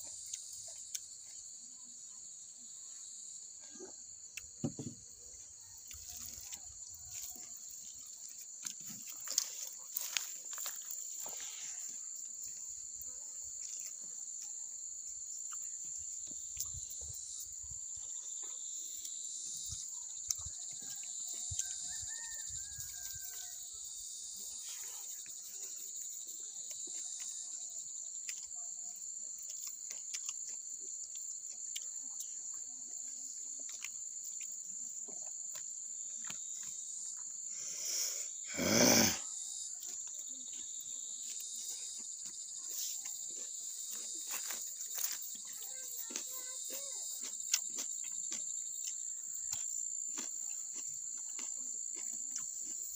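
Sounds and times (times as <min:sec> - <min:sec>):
high-pitched insect chorus: 0:00.0 - 0:52.9
chewing and eating clicks: 0:29.4 - 0:32.4, 0:46.0 - 0:52.9.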